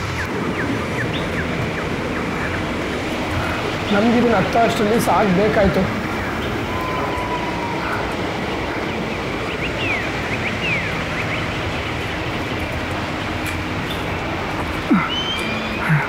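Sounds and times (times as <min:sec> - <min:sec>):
waterfall rushing: 0:00.0 - 0:16.0
bird chirps: 0:07.8 - 0:12.6, 0:14.9 - 0:16.0.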